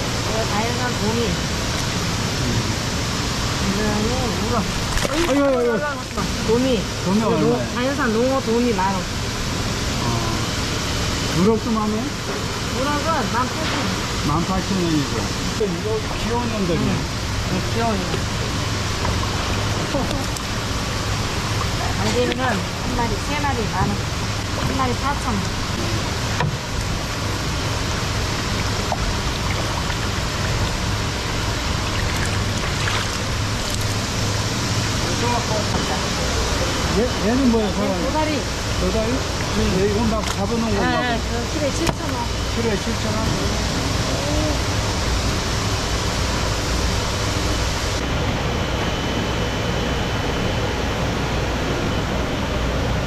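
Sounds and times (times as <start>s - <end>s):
seawater rushing and bubbling: 0.0s - 7.8s, 14.0s - 53.0s
faint high whine: 0.0s - 53.0s
indoor market rushing noise: 42.2s - 53.0s.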